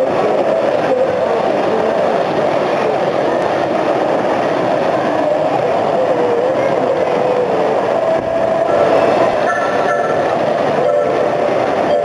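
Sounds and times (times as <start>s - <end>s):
model train running rumble: 0.0s - 12.0s.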